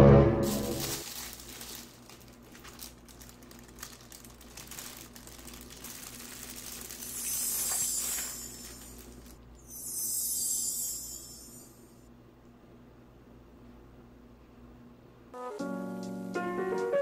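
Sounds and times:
plastic bag crinkling: 0.4 - 9.4.

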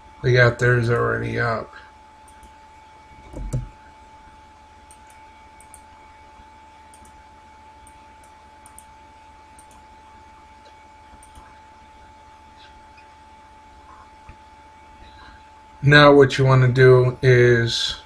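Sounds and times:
faint electrical hum: 0.0 - 18.0
computer mouse clicks: 2.3 - 2.6, 3.2 - 3.7, 4.9 - 5.9, 6.9 - 7.2, 7.8 - 8.9, 9.6 - 9.8, 10.6 - 11.5.

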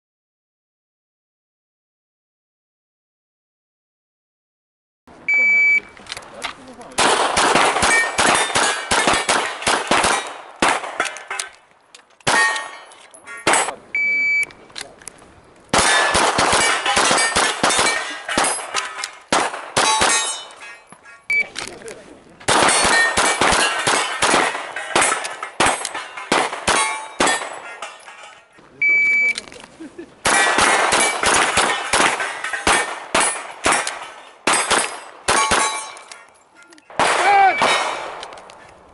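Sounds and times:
rapid handgun shots: 7.0 - 11.3, 12.2 - 12.9, 15.7 - 20.5, 22.5 - 27.8, 30.2 - 36.0, 36.9 - 38.3
steel plates clanging: 11.0 - 11.6, 12.3 - 13.8, 15.8 - 21.3, 22.7 - 28.6, 30.3 - 36.5.

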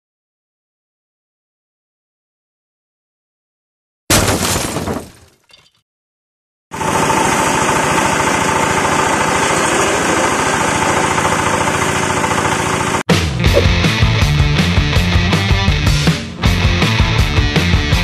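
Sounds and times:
shredder chopping branches: 6.8 - 13.0
diesel engine running: 6.8 - 15.0.

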